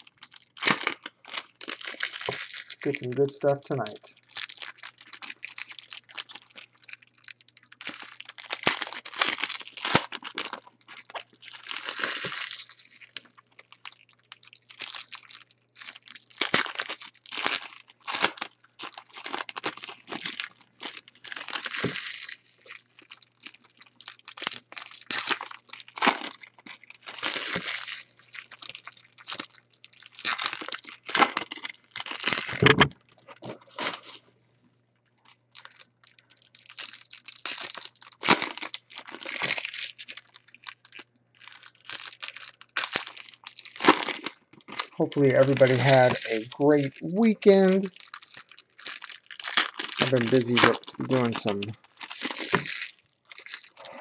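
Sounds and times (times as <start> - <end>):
foil wrappers crinkling and tearing: 0.0 - 34.3, 35.2 - 54.0.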